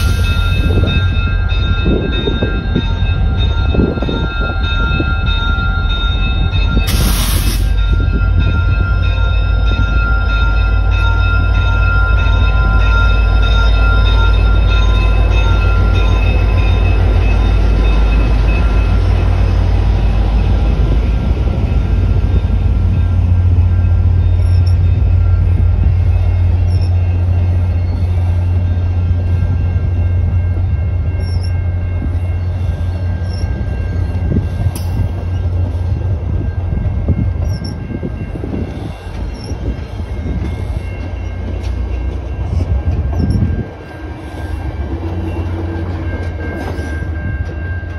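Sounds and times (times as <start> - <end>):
diesel locomotive rumble and whine: 0.0 - 47.9
train wheels rolling on rails: 0.0 - 47.9.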